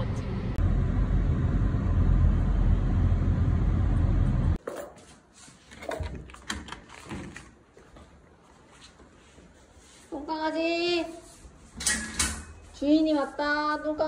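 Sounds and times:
car road rumble: 0.0 - 4.6
metal gate clicks and knocks: 11.8 - 12.6.

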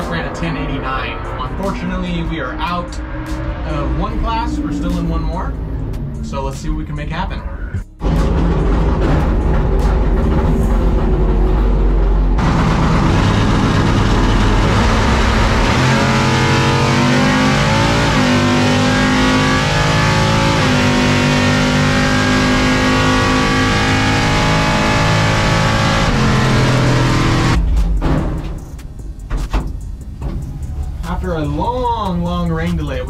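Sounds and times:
truck engine running hard: 8.0 - 27.6.

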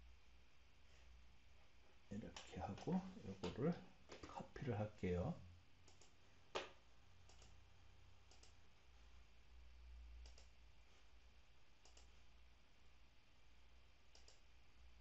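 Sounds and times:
faint low hum: 0.0 - 15.0
computer mouse clicks: 5.8 - 6.2, 7.3 - 7.6, 8.3 - 8.6, 10.2 - 10.6, 11.8 - 12.2, 14.1 - 14.5.

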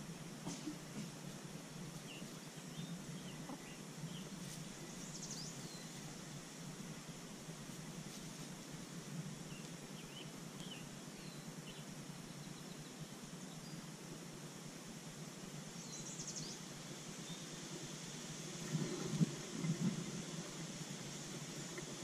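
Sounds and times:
steady hiss: 0.0 - 22.0
birds chirping: 2.0 - 6.6, 9.3 - 13.8.

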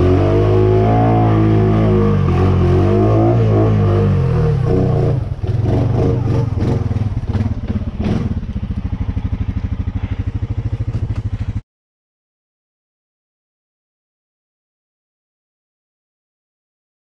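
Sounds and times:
atv engine running hard: 0.0 - 11.6.

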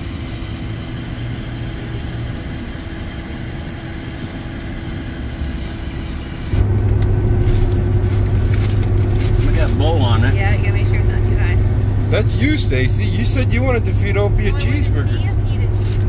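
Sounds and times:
road noise: 0.0 - 16.0
truck engine: 0.0 - 16.0.

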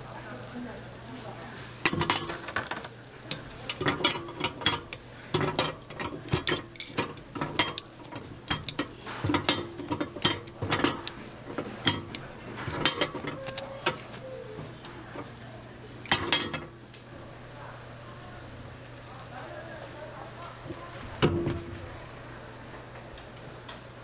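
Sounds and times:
metal hook clanking on iron molds: 1.9 - 14.0, 16.1 - 16.7.

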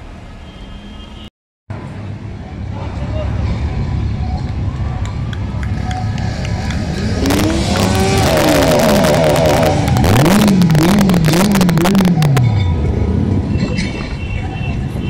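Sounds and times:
engine revving hard: 6.8 - 12.4.

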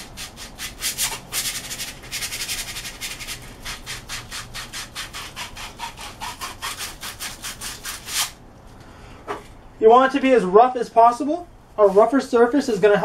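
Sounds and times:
sandpaper rasping on plastic pipe: 0.0 - 8.4.

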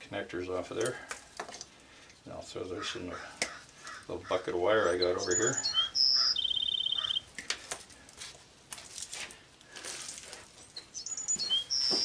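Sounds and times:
wires clicking and rustling: 0.7 - 2.2, 7.3 - 11.0
birds chirping: 2.6 - 7.6, 10.6 - 12.0.

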